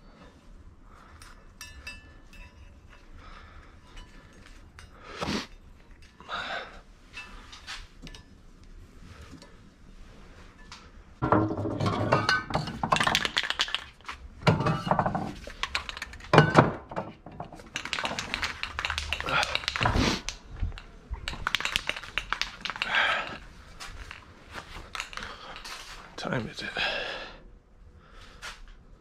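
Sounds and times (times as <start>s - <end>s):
hard objects clattering on shelf: 11.2s - 26.0s.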